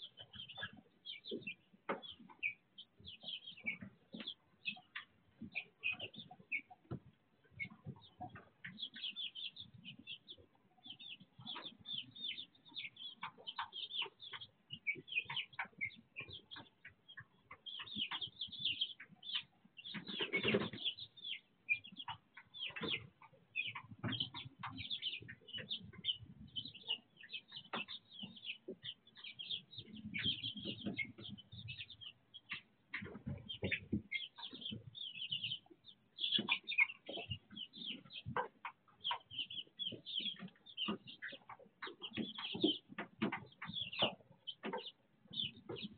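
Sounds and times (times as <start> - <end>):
chicks peeping: 0.0 - 45.9.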